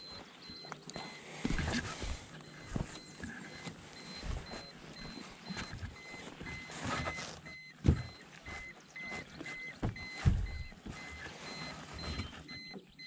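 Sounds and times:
short electronic beeps: 0.0 - 13.0.

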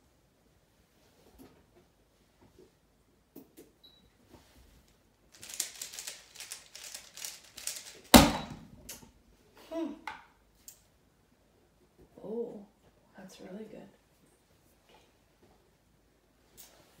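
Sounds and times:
puzzle cube clicking: 5.4 - 8.1.

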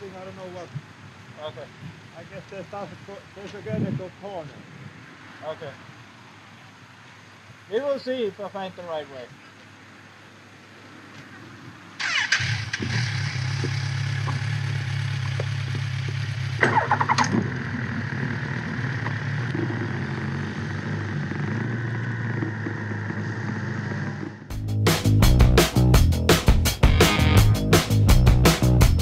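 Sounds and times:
motorcycle engine starting and idling: 12.0 - 24.6
engine revving: 12.0 - 25.8, 26.4 - 28.7.

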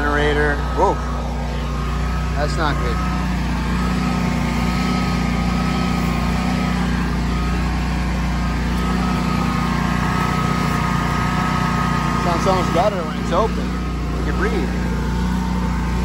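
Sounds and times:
man talking: 0.0 - 1.6, 2.2 - 3.2, 12.2 - 14.8
generator engine running: 0.0 - 16.0.

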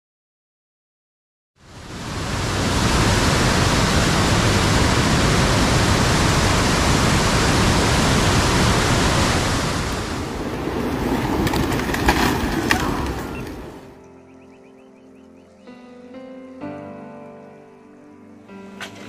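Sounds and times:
flooded river rushing: 1.7 - 14.0.

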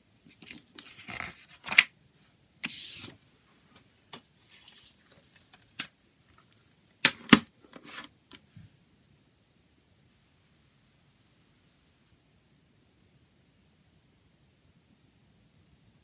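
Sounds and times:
paper booklet sliding: 2.6 - 3.2.

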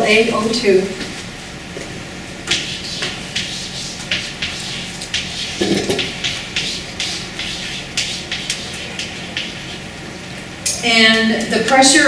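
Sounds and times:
pen scratching on paper: 2.5 - 9.8.

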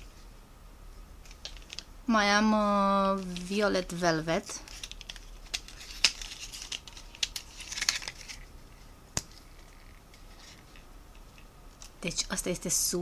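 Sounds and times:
cardboard and wrapping rustling: 3.0 - 8.8.

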